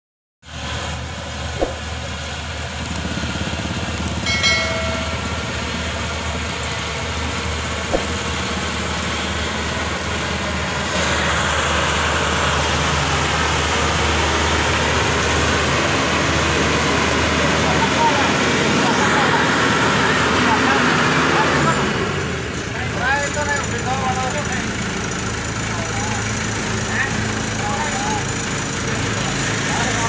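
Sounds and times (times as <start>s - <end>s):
combine harvester diesel engine: 0.5s - 30.0s
brief high-pitched tone: 4.3s - 5.7s.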